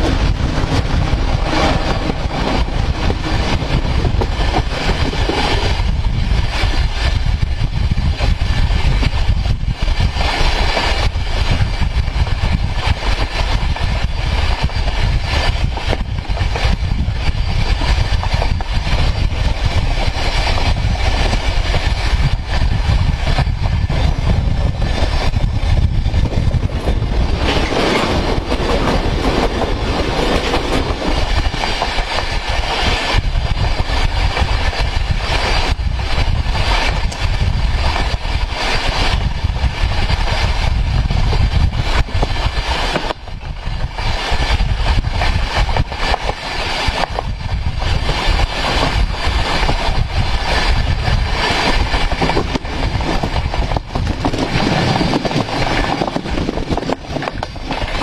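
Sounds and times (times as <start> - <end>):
train wheel rumbling on rail: 0.0 - 58.0
wheel clacks: 9.8 - 58.0.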